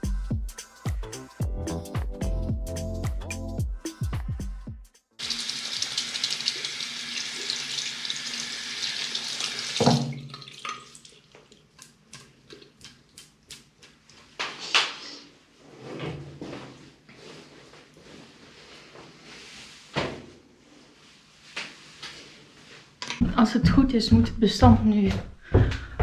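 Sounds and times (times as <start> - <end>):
tap water running into sink: 5.2 - 11.9.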